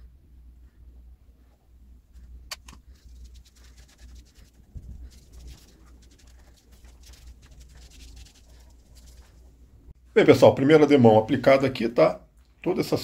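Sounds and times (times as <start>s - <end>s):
low steady hum: 0.0s - 13.0s
wet rubbing of resin: 2.1s - 9.7s.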